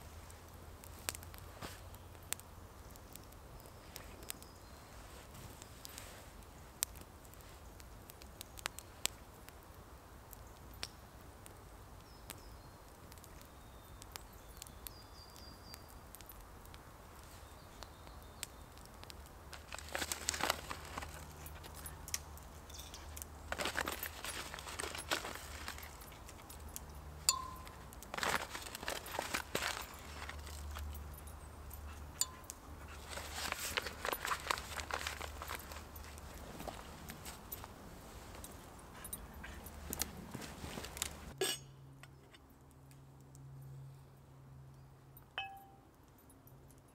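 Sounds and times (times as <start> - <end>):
campfire crackling and popping: 0.0 - 43.5
rustling: 19.5 - 31.2, 31.9 - 41.4.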